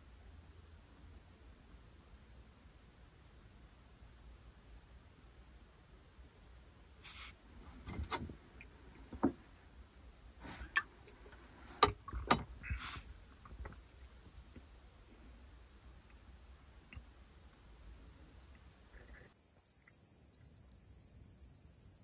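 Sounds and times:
bottle opening hiss: 0:07.0 - 0:07.4, 0:12.6 - 0:13.2.

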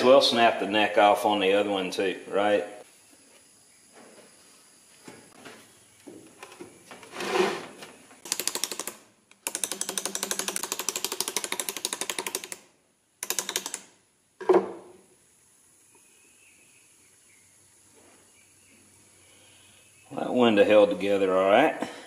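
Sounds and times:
ratcheting driver clicking: 0:13.2 - 0:13.9.

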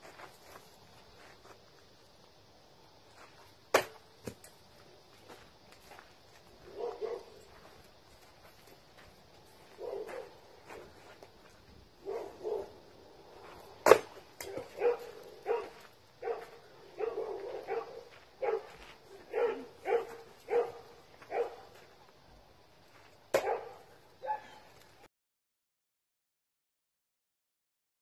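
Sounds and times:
tomahawk striking tree trunk: 0:03.7 - 0:04.5, 0:13.8 - 0:14.7, 0:23.3 - 0:23.6
dog barking: 0:06.7 - 0:07.4, 0:09.8 - 0:10.4, 0:12.0 - 0:12.7, 0:14.5 - 0:21.7, 0:23.4 - 0:24.6.

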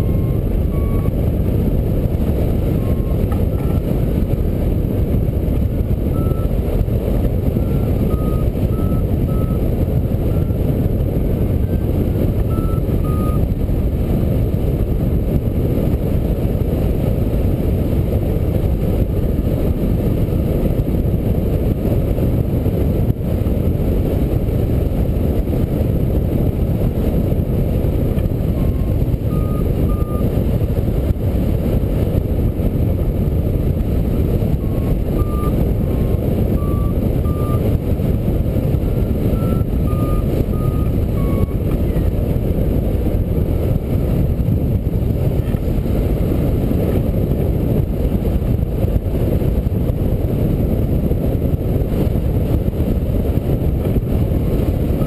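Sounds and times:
variometer beeps: 0:00.0 - 0:01.3, 0:02.7 - 0:03.9, 0:06.1 - 0:06.8, 0:07.4 - 0:10.6, 0:11.6 - 0:13.6, 0:28.4 - 0:30.4, 0:34.5 - 0:37.7, 0:39.2 - 0:42.2
wind rushing over microphone: 0:00.0 - 0:55.0.

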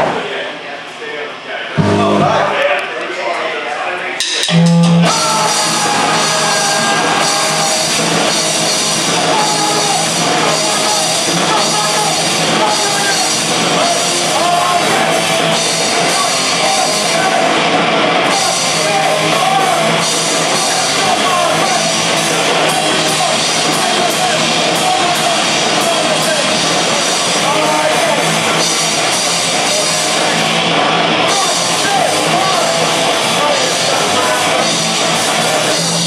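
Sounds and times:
drum hits: 0:01.8 - 0:02.5
punk rock band playing: 0:01.8 - 0:02.5, 0:04.5 - 0:36.0.

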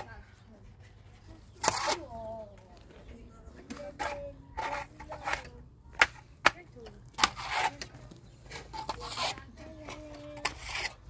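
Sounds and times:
trowel scraping wet plaster: 0:01.0 - 0:02.2, 0:03.7 - 0:06.2, 0:07.1 - 0:11.0.

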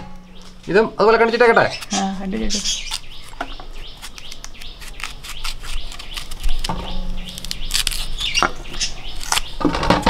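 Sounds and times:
birds chirping: 0:00.0 - 0:10.0
knife scraping mango skin: 0:01.6 - 0:09.9.

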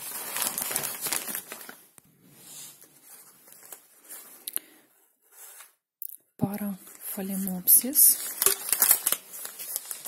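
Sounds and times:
paper wrapping crinkling: 0:00.0 - 0:04.5, 0:06.9 - 0:10.0.

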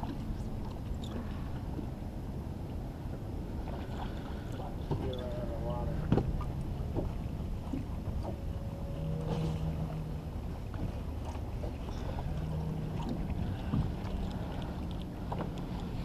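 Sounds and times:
wind and water rumble: 0:00.0 - 0:16.0.

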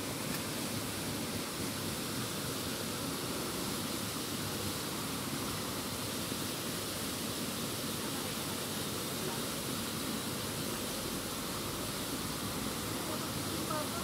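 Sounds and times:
mountain stream flowing: 0:00.0 - 0:14.0.

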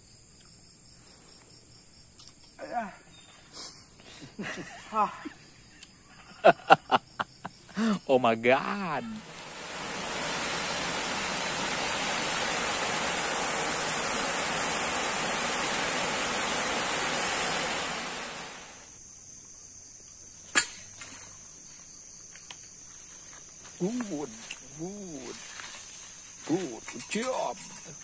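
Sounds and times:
steady rushing hiss: 0:06.5 - 0:19.1, 0:22.8 - 0:28.0.

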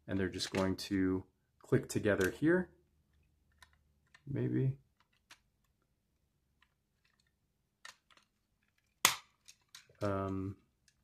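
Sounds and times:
plastic toy parts clicking: 0:03.1 - 0:04.3, 0:04.9 - 0:05.9, 0:06.6 - 0:11.0
plastic toy snapping together: 0:09.0 - 0:09.9.

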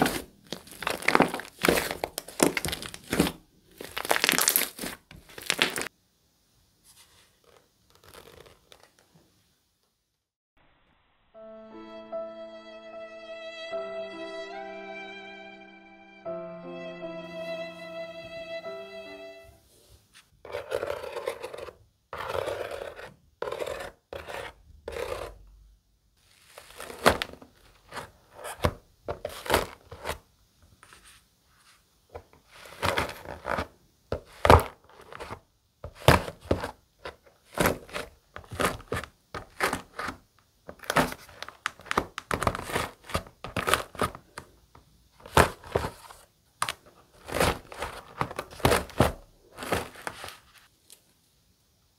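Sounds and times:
dried slime crust crackling: 0:00.0 - 0:05.9.

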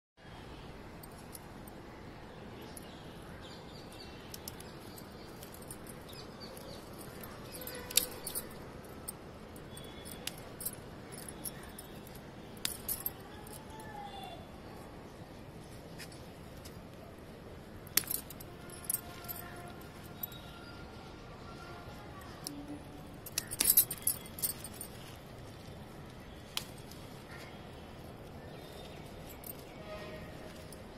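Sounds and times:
bangles jangling: 0:03.9 - 0:13.7, 0:17.9 - 0:20.6, 0:23.1 - 0:25.9, 0:28.6 - 0:30.9
sharp clicks of okra picking: 0:26.1 - 0:27.6.

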